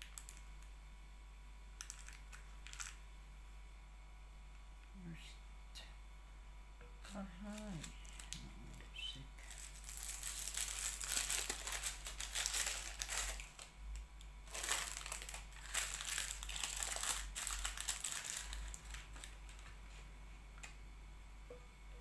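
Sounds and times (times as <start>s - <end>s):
paper liners crinkling: 1.8s - 3.0s, 7.5s - 8.4s, 9.4s - 20.0s.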